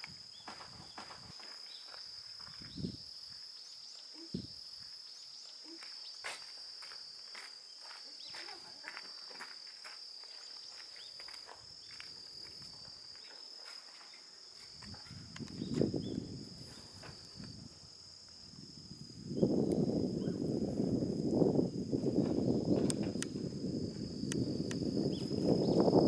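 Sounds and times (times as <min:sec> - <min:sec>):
insects chirring: 0:00.0 - 0:26.0
small ticks: 0:10.6 - 0:15.8, 0:22.7 - 0:23.4, 0:24.2 - 0:25.3.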